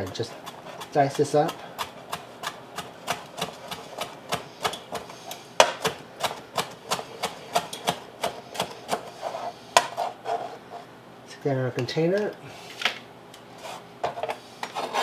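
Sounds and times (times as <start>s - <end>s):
knife chopping on cutting board: 0.0s - 9.2s, 9.8s - 10.2s.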